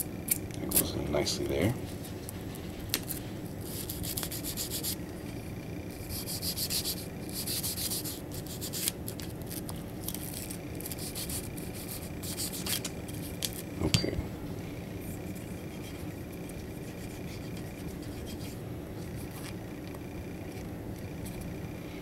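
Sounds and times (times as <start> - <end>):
bristle brush scrubbing: 15.7 - 19.5.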